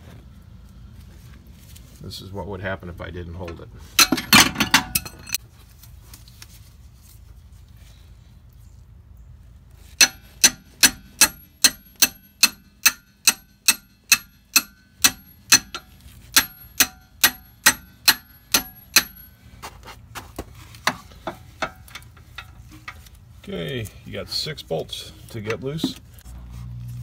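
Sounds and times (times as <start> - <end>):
hammer striking steel bar: 10.0 - 19.4.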